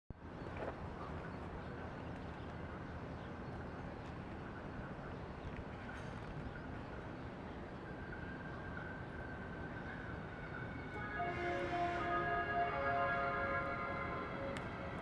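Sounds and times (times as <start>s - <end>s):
faint clicks: 14.5s - 14.8s.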